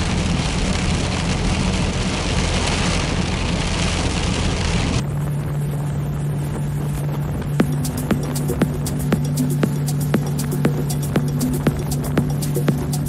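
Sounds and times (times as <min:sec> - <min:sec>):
tyres hissing on wet road: 0:00.0 - 0:05.0
car engine and road hum: 0:00.0 - 0:13.0
rain on windscreen: 0:00.0 - 0:13.0
music holding a low tone: 0:05.0 - 0:13.0.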